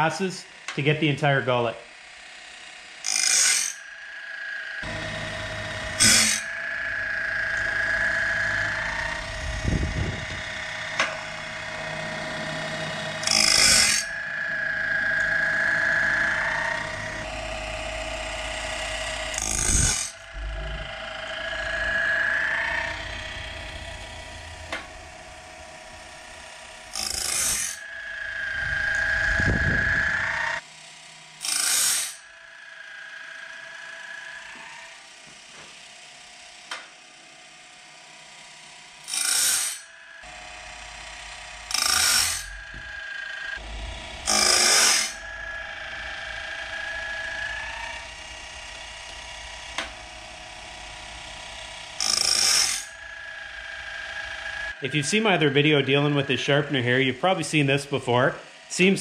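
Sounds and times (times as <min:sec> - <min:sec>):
motor whine and hum: 0:00.0 - 0:59.0
harsh grinding burst: 0:00.8 - 0:30.7, 0:39.0 - 0:59.0.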